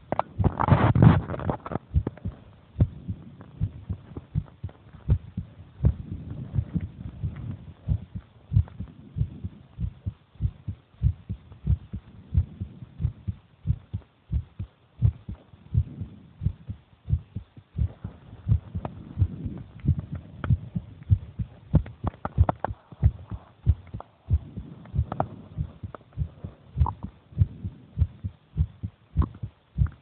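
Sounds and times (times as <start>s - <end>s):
heartbeat thumps: 0.0s - 30.0s.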